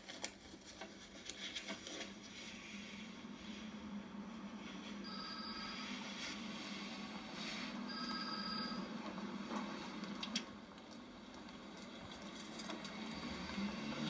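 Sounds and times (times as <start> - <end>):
electronic telephone ringing: 5.1 - 5.9, 7.9 - 8.9.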